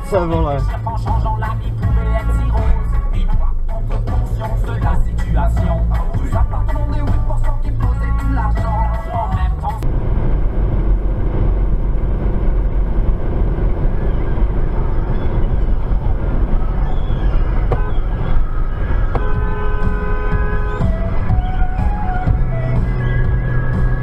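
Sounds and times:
car horn blast: 1.8s - 3.6s, 17.5s - 21.8s
tyre and wind noise in car: 9.8s - 24.0s.

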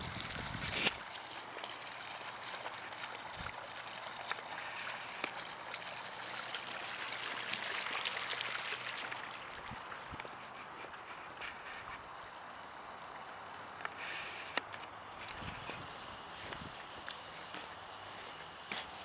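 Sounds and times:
water splashing onto pebbles: 0.0s - 10.4s
fountain water trickling: 0.0s - 19.0s.

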